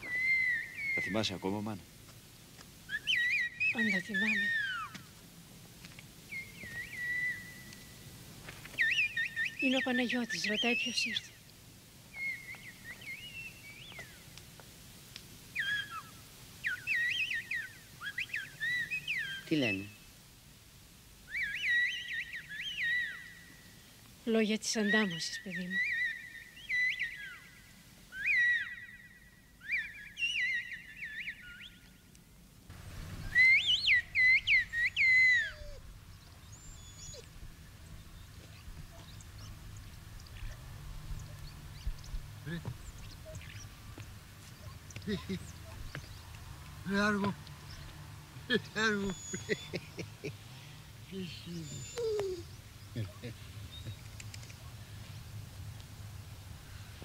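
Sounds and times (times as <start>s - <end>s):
low outdoor rumble: 32.0s - 57.0s
faint high chirps: 51.1s - 54.8s.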